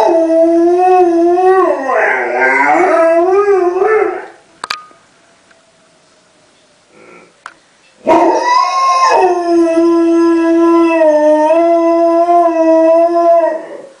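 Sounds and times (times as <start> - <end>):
dog howling: 0.0 - 4.4, 8.1 - 14.0.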